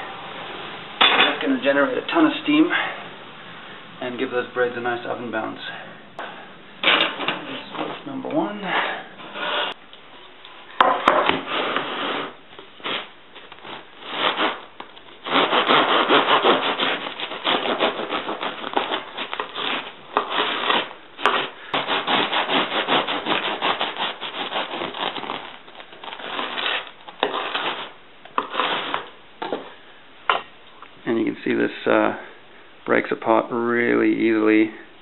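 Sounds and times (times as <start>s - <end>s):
bread knife sawing through crusty loaf: 9.2s - 9.8s, 11.3s - 29.1s.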